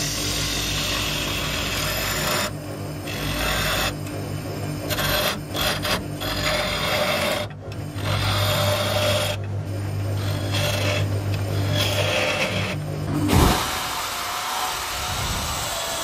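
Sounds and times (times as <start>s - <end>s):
turning tool rasping on spinning wood: 0.0s - 4.1s, 4.7s - 13.0s
lathe motor humming: 0.0s - 16.0s.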